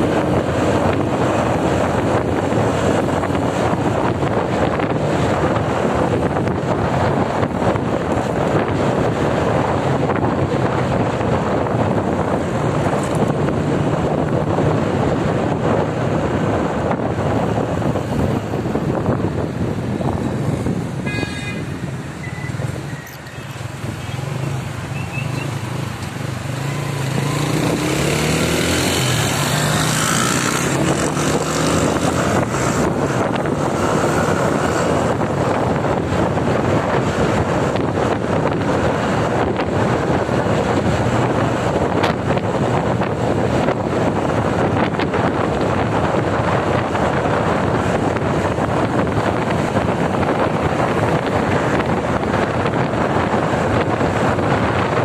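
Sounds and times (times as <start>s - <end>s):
wind and road noise: 0.0s - 55.0s
wind buffeting microphone: 0.0s - 55.0s
engine accelerating: 24.2s - 36.4s.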